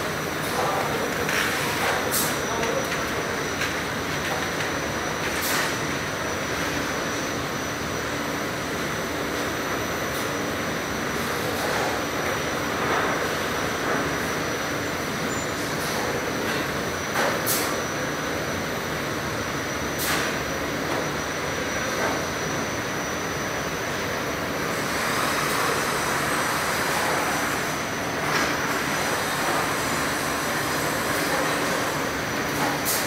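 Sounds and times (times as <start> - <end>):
oven conveyor hiss and rumble: 0.0 - 33.0.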